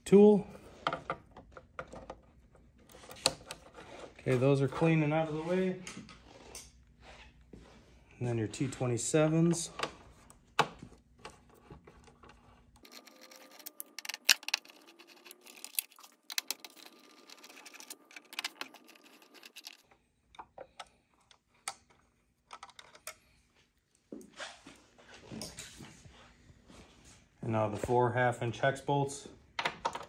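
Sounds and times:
small screws being handled: 12.8s - 19.9s.

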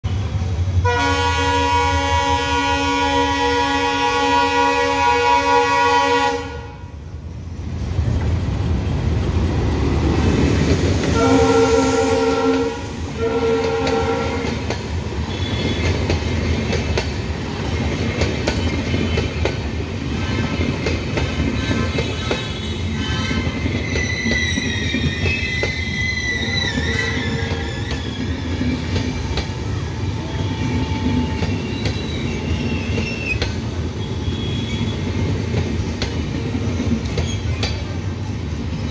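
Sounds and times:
locomotive and train rumble: 0.0s - 38.9s
locomotive horn blasts: 0.8s - 6.9s, 11.2s - 14.6s
coaches clattering over rails: 7.7s - 38.9s
wavering high squeal: 23.0s - 28.9s, 30.0s - 33.4s.

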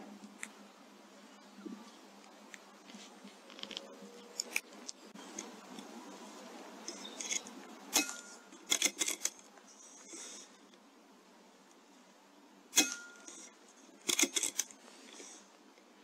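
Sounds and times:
metallic clicks of rifle action: 6.8s - 9.5s, 12.8s - 14.8s.

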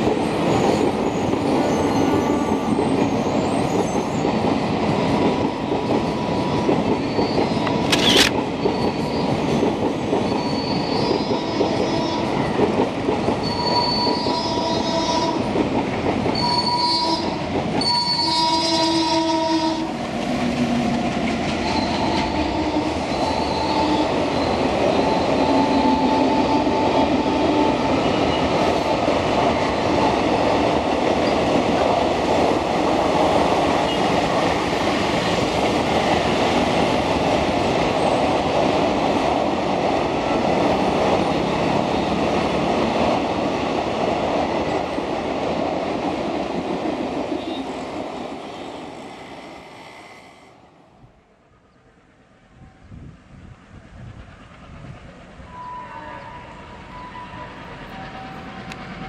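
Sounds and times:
train wheels rumbling on rails: 0.0s - 59.0s
sharp click: 7.6s - 8.4s.

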